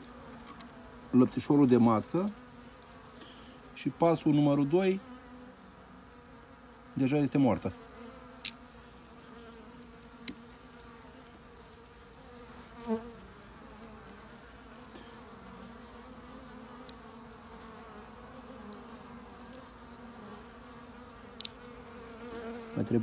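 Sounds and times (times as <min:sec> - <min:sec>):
bees buzzing: 0:00.0 - 0:23.0.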